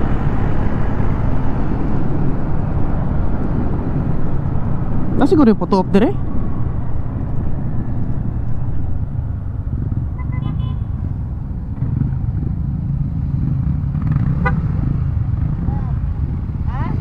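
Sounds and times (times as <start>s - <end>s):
scooter engine and road noise: 0.0s - 17.0s
scooter horn toot: 10.2s - 10.9s.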